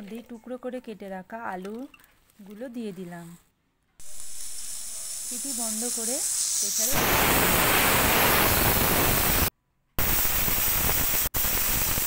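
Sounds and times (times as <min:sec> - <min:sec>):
pressure cooker steam hissing: 0:04.0 - 0:12.0.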